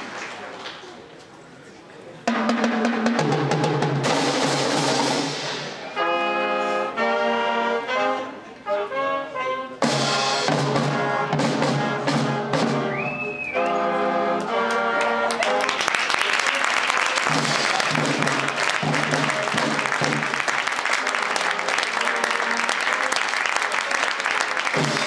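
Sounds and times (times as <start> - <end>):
brass held chords: 6.0 - 12.9, 13.6 - 15.8, 16.5 - 23.8.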